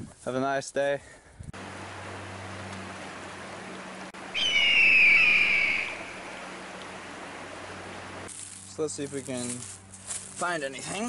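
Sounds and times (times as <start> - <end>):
background hiss: 0.0 - 11.0
low hum: 1.6 - 8.3
long whistled note: 4.4 - 6.3.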